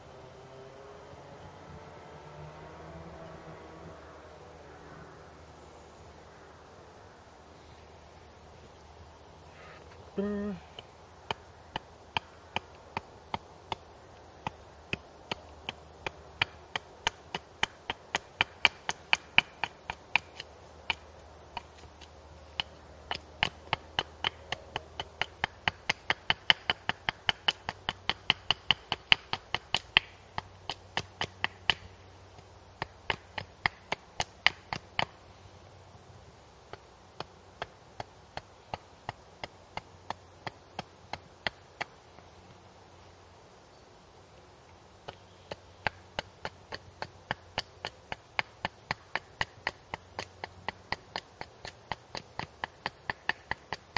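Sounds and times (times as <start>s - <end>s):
hatchet chopping wood: 10.8s - 35.2s, 36.7s - 42.2s, 45.0s - 53.9s.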